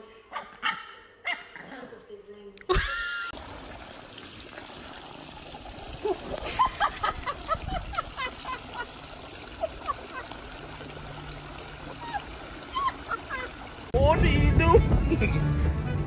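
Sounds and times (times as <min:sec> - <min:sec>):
running water: 0:02.6 - 0:14.4.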